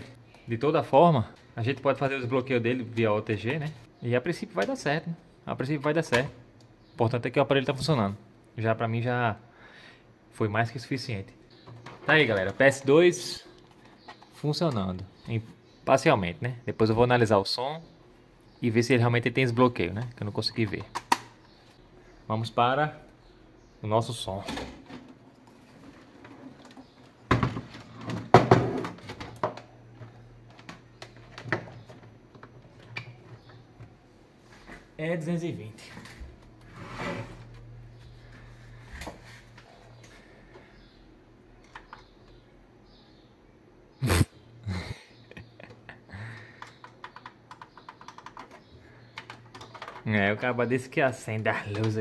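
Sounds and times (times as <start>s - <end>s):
cables clicking and tapping: 29.0s - 34.0s, 45.3s - 50.1s.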